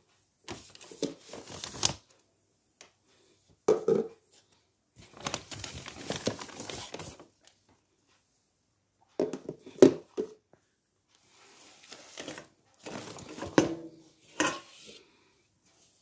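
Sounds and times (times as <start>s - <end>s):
lids and pot clattering: 12.8s - 14.8s.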